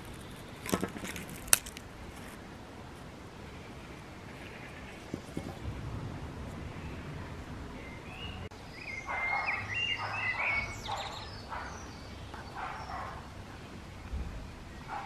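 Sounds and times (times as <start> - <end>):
small birds singing: 0.0 - 1.2, 3.3 - 15.0
faint low rumble: 1.8 - 8.5.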